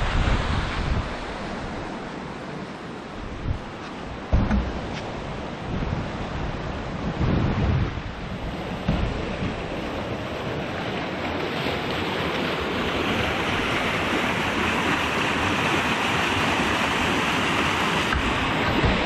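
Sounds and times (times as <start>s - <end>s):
stream rushing fast: 0.0s - 19.0s.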